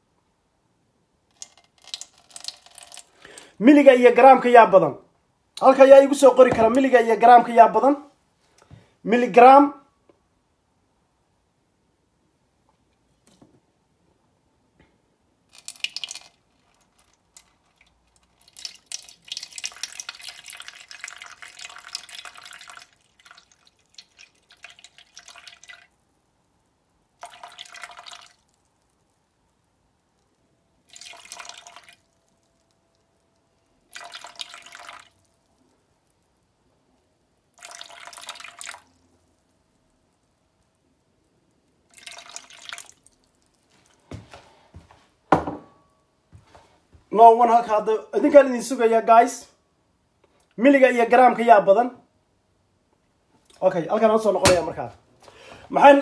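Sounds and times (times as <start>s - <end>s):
water pouring into plastic bowl: 1.3s - 3.6s, 15.5s - 26.1s, 27.1s - 29.1s, 30.8s - 32.7s, 33.8s - 36.2s, 37.5s - 39.6s, 41.8s - 44.4s.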